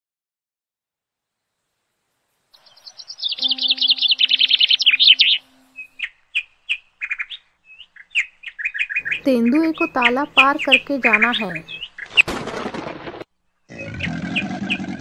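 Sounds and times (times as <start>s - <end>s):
birds chirping: 2.6s - 12.4s, 13.4s - 15.0s.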